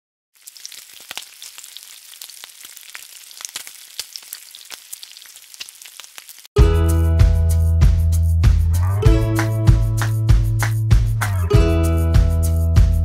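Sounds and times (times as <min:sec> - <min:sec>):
food sizzling in hot oil: 0:00.4 - 0:06.5.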